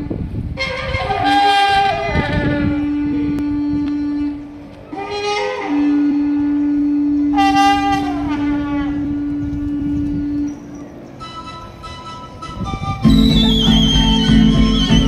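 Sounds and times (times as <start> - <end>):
wind instruments playing dance music: 11.2 - 15.0.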